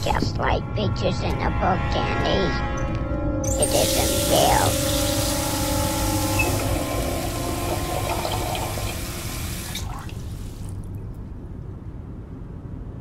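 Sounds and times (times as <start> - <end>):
water gushing from sink tap: 3.6 - 10.9.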